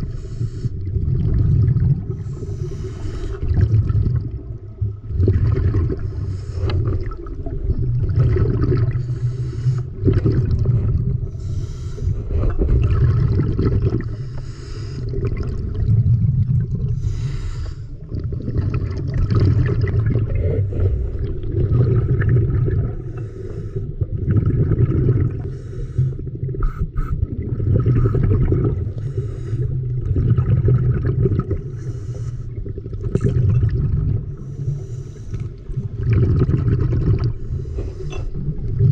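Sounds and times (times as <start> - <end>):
underwater breathing: 0.0 - 4.3, 5.2 - 15.6, 16.8 - 18.9, 19.6 - 38.9.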